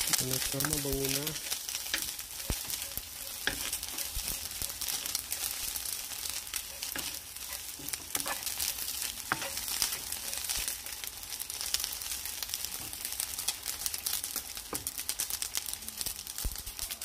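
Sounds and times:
fish sizzling in a wok: 0.0s - 17.0s
wooden spatula scraping a pan: 0.6s - 10.9s.

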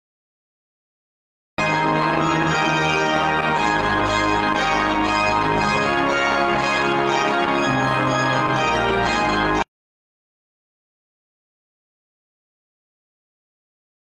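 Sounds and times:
church organ chords: 1.6s - 9.7s.

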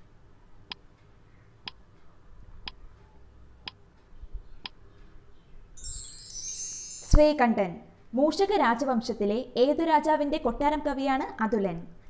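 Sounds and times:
bright high chime: 5.8s - 7.4s.

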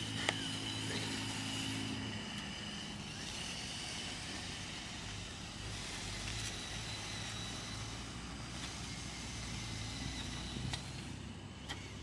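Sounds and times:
small electric motors whining: 0.0s - 12.0s
blade pushing dirt: 5.6s - 12.0s.

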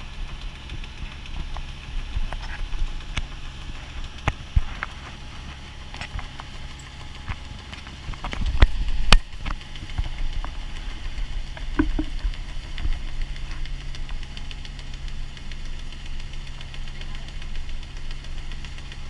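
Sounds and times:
boat engine running: 0.0s - 19.0s
sharp knocks: 11.6s - 12.3s.

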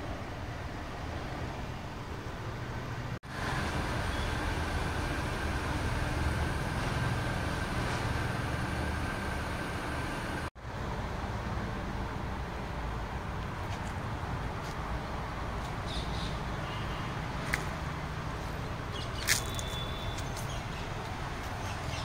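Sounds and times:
distant road traffic rumble: 0.0s - 22.0s
faint high whine: 3.4s - 10.5s.

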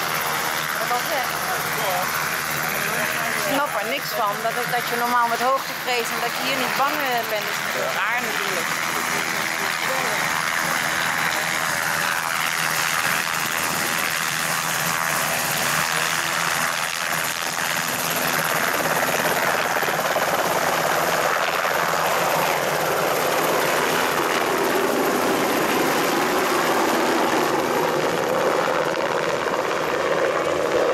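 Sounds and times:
helicopter rotor running: 0.0s - 30.9s.

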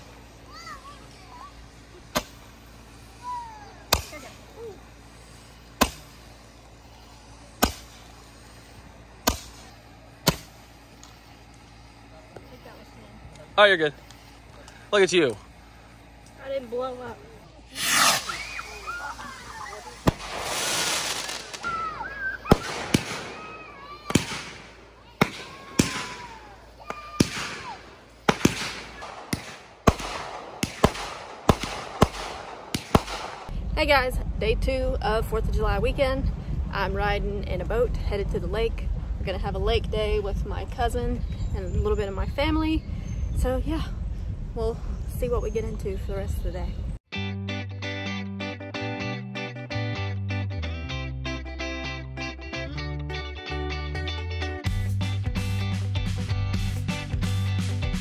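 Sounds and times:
fireworks bursting: 0.0s - 34.6s
roman candle firework pops: 2.1s - 2.5s, 5.7s - 6.1s, 7.6s - 8.1s, 9.2s - 11.6s, 20.0s - 21.7s, 22.4s - 33.5s
faint falling whistle: 21.6s - 22.6s.

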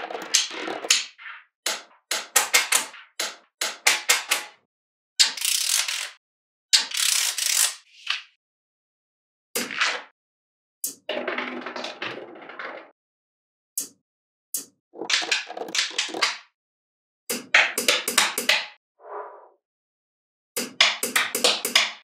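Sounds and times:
magnetic balls clicking together: 20.6s - 22.0s.

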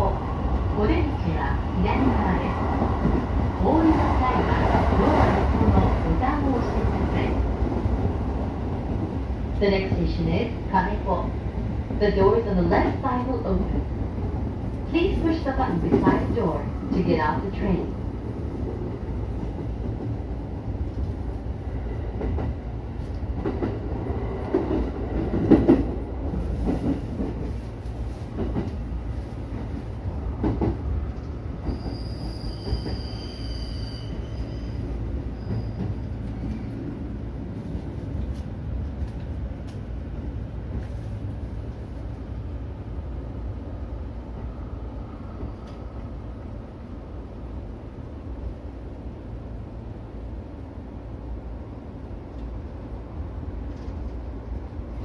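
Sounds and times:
train rumbling on rails: 0.0s - 55.0s
high squeal: 31.7s - 36.1s.

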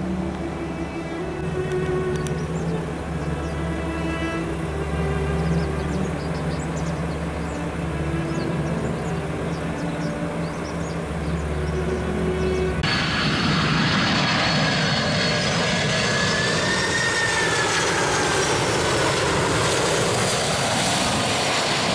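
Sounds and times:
jet airliner passing: 0.0s - 21.9s
soft background music: 0.0s - 21.9s.

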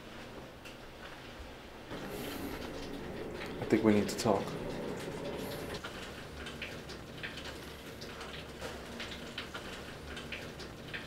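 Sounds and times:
steady low hum: 1.7s - 8.2s.

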